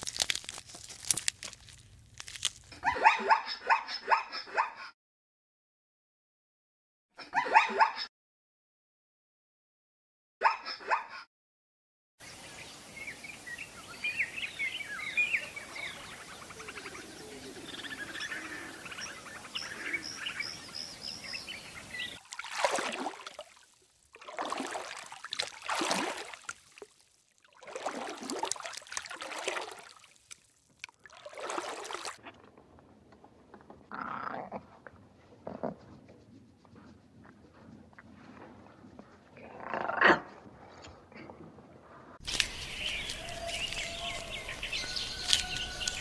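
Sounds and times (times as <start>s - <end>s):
small birds chirping: 12.2s - 22.2s, 42.2s - 46.0s.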